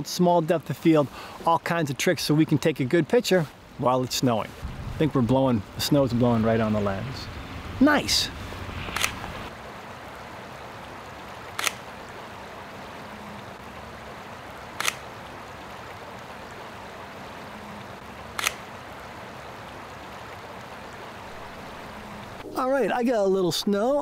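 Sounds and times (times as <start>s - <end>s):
flowing stream: 0.0s - 24.0s
camera shutter clicks: 8.8s - 9.2s, 11.6s - 11.8s, 14.8s - 15.0s, 18.4s - 18.7s.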